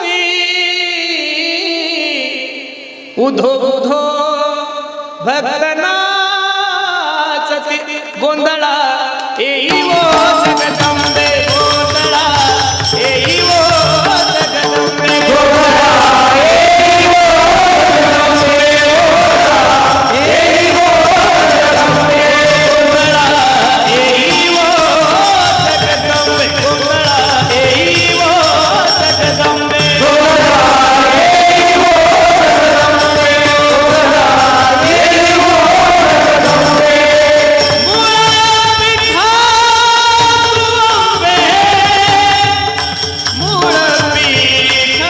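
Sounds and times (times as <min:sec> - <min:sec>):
devotional song with sliding melody: 0:00.0 - 0:45.0
regular drum beat: 0:09.6 - 0:45.0.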